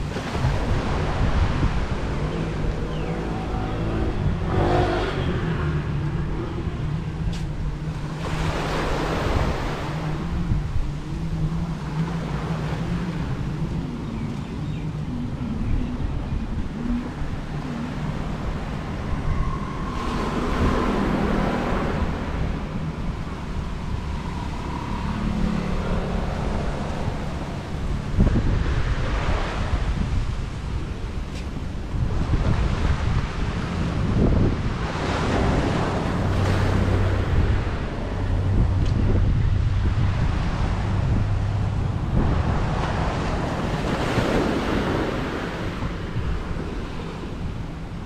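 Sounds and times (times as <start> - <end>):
cars and motorbikes passing: 0.0 - 48.0
low engine hum: 0.0 - 48.0.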